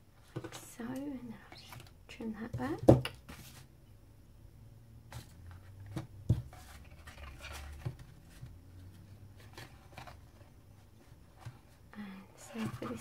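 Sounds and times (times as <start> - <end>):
paper rustling: 5.1 - 11.8.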